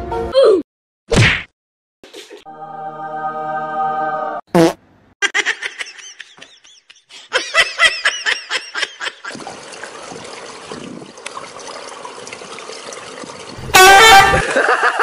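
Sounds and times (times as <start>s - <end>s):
person laughing: 5.2s - 9.4s, 14.2s - 15.0s
outdoor noise: 6.3s - 15.0s
trickling pool water: 7.4s - 15.0s.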